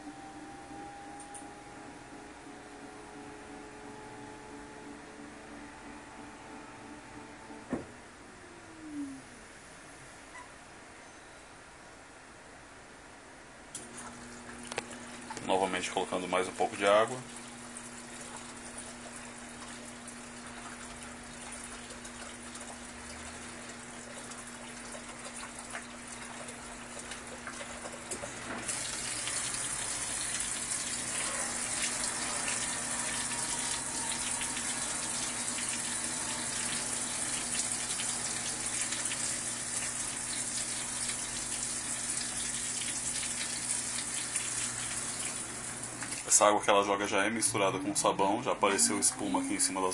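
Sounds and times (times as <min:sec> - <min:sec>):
washing machine hum: 0:00.0 - 0:10.9, 0:12.1 - 0:49.9
water spraying into drum: 0:13.8 - 0:46.3.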